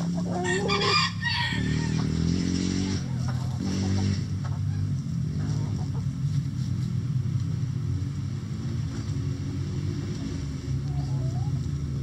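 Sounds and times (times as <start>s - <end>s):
chickens clucking: 0.0s - 2.3s, 3.0s - 6.7s, 10.8s - 12.0s.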